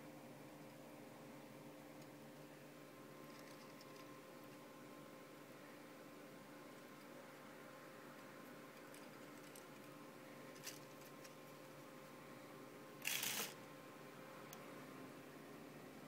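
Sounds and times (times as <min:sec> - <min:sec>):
faint steady hum: 0:00.0 - 0:16.0
plastic scraping rattle: 0:13.0 - 0:13.6.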